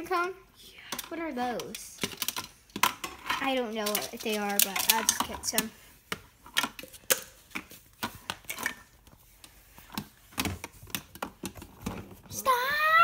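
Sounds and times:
toy pieces clicking and knocking: 3.3s - 5.7s.

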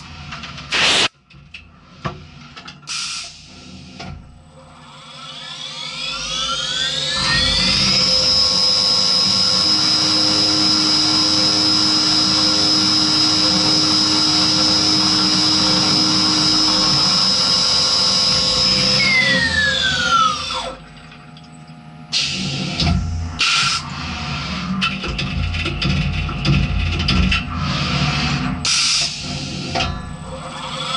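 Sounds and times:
loud machine noise bursts: 0.7s - 1.1s, 4.9s - 20.8s, 22.1s - 25.6s
milling machine spindle whine: 4.6s - 30.9s.

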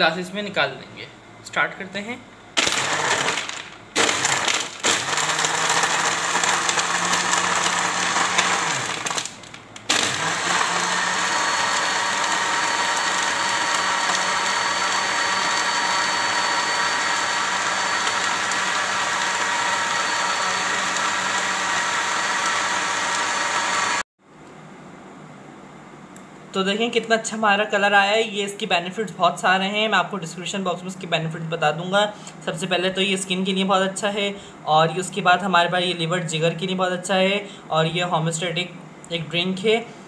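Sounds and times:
blender running: 2.6s - 24.1s.

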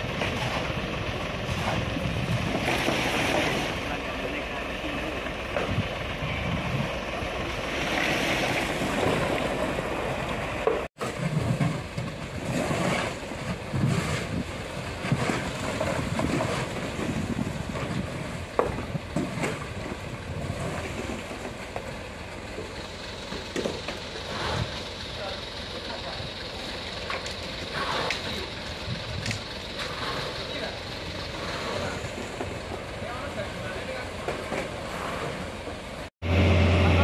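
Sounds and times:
diesel engine running: 0.0s - 37.0s.

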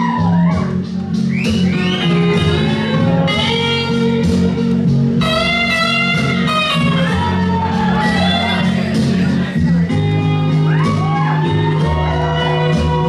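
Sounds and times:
repeating bass line: 0.0s - 13.0s
electric guitar notes: 1.7s - 7.4s.

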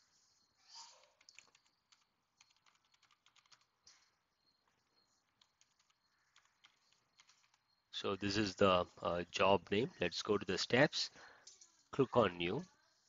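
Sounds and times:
keyboard typing: 0.9s - 7.8s.

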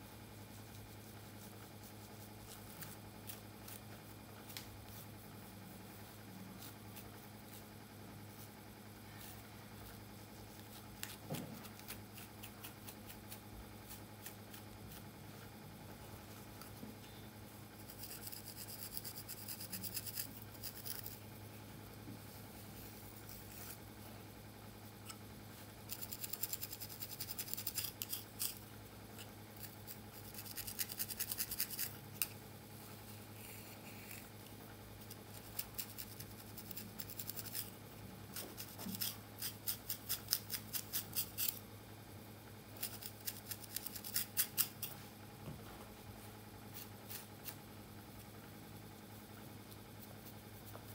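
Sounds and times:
comb scratching through hair: 0.5s - 7.7s, 8.3s - 15.1s, 17.8s - 21.2s, 25.9s - 28.6s, 29.2s - 32.4s, 33.1s - 34.3s, 35.1s - 41.6s, 42.8s - 45.0s, 46.7s - 47.6s.

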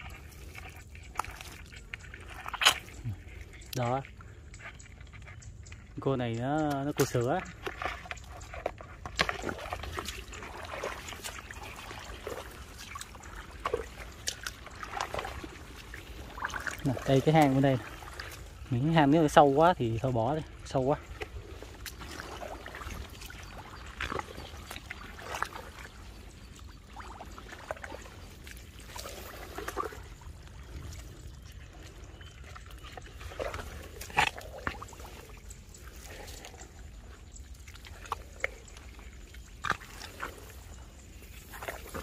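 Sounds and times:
hands squelching in wet mud: 0.0s - 42.0s.

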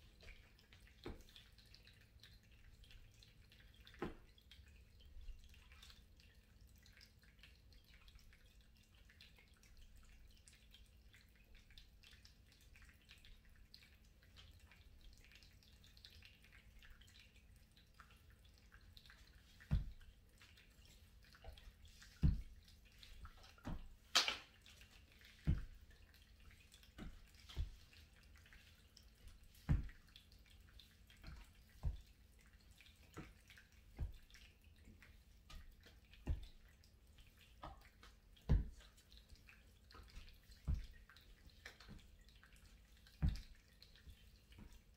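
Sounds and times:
feet thudding on floor mat: 19.7s - 20.0s.

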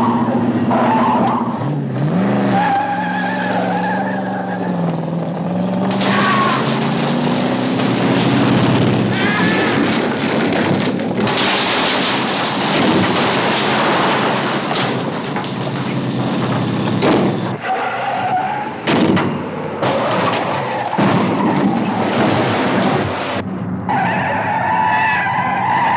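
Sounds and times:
car engine revving: 0.0s - 23.8s
car crashing through wooden crates: 2.4s - 23.4s
tyre squeals: 9.1s - 9.8s, 17.4s - 18.8s.

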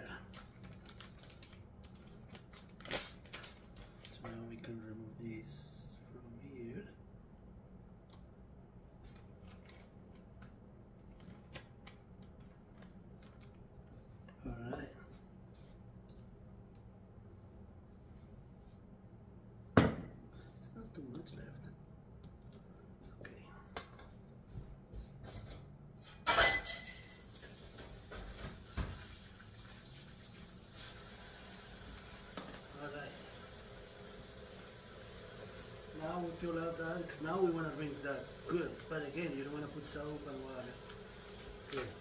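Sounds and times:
plastic bag crinkling: 0.2s - 4.2s
metal bowl clattering in sink: 26.1s - 27.4s
tap water running: 27.2s - 42.0s.

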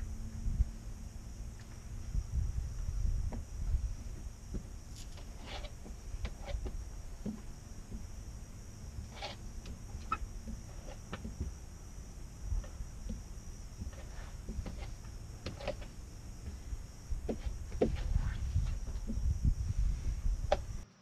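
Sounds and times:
low rumble: 0.0s - 4.9s, 16.0s - 20.8s
hands squeaking on window glass: 9.0s - 11.5s.

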